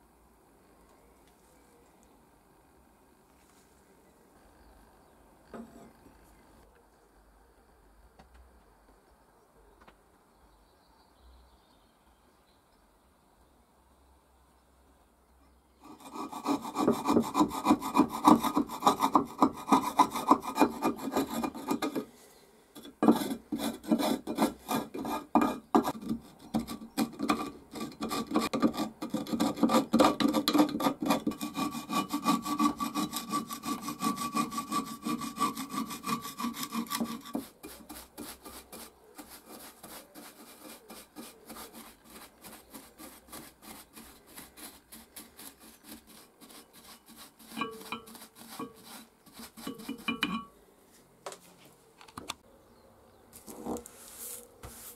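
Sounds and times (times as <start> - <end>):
scraping rust inside metal plane: 15.8 - 22.1, 22.8 - 50.5
stiff bristle brush scrubbing: 31.0 - 50.4, 53.4 - 54.9.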